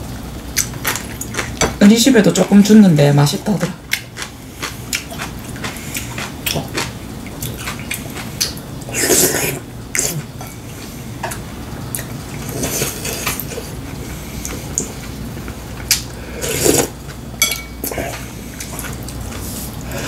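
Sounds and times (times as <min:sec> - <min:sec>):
slurping broth: 0:07.5 - 0:10.9, 0:12.4 - 0:15.2, 0:15.9 - 0:17.0.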